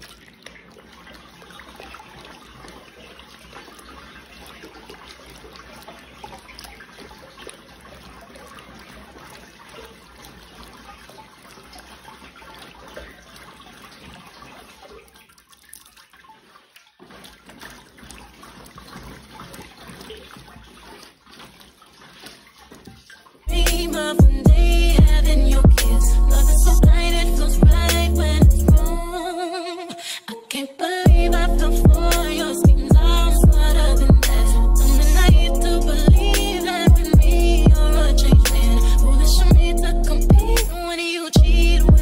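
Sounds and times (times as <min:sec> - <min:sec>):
hand squishing wet mash: 0:00.0 - 0:28.6
loud music: 0:23.5 - 0:29.1, 0:31.1 - 0:40.8, 0:41.4 - 0:42.0.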